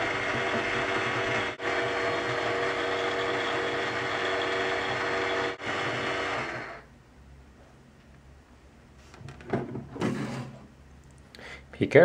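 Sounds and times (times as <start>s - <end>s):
toy microwave whirring hum: 0.0s - 6.9s.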